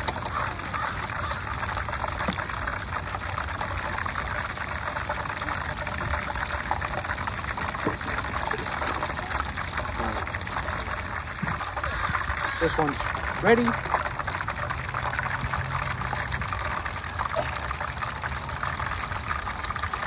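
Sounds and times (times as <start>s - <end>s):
hot oil sizzling and crackling: 0.0s - 20.0s.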